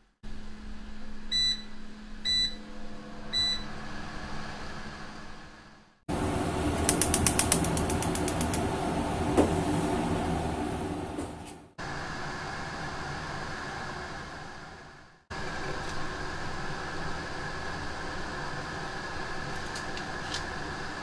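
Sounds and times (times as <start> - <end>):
fan humming: 0.3 - 21.0
gas igniter clicking: 6.8 - 8.7.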